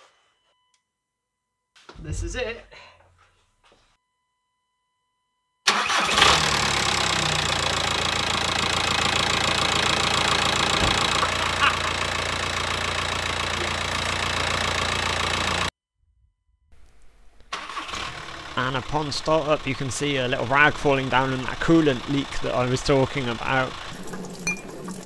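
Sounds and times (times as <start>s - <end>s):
diesel engine starting and idling: 5.7s - 15.7s, 17.4s - 25.0s.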